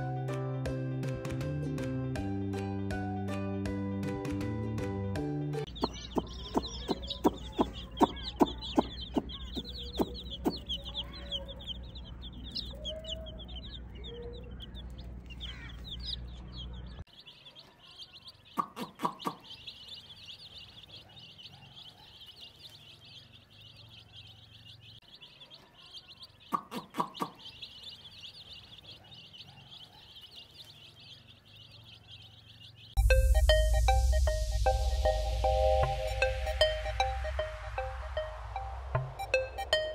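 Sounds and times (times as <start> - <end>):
baby chicks peeping: 5.6 - 39.9
low hum: 33.0 - 39.9.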